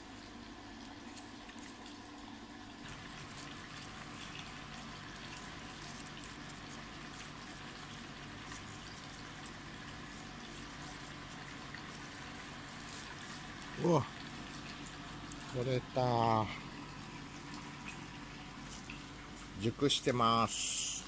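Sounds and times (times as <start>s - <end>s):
leaves and branches rustling: 3.3s - 15.7s, 16.9s - 19.7s.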